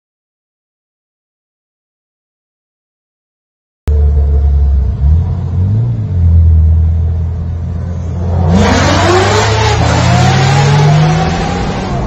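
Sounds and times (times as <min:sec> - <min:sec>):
low engine drone inside car: 0:03.9 - 0:08.5
sports car engine at full throttle: 0:03.9 - 0:12.0.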